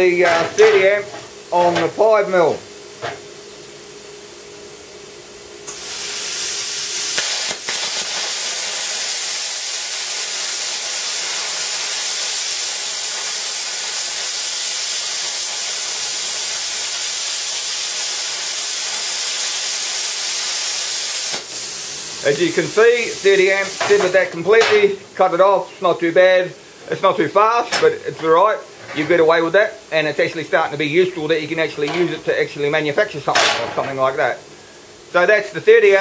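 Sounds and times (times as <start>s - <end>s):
plasma cutter hissing: 5.7s - 34.5s
plasma cutter click: 7.1s - 9.2s, 21.2s - 21.6s
faint steady hum: 21.4s - 36.0s.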